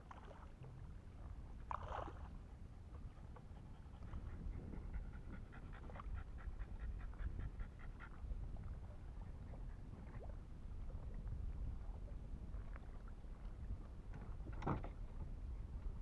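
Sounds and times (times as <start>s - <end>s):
low steady rumble: 0.0s - 16.0s
dog panting rapidly: 2.9s - 8.3s.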